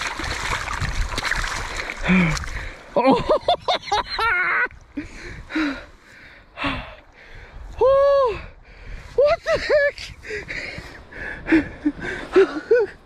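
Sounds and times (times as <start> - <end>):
splashing in shallow water: 0.0 - 3.8.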